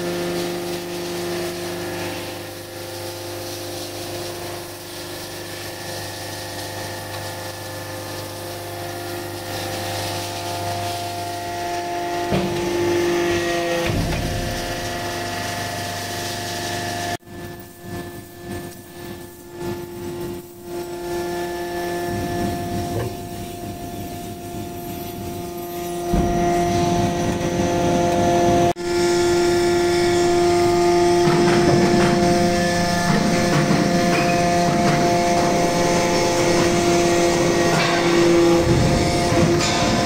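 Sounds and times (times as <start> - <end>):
hydraulic press machine hum: 0.0 - 40.0.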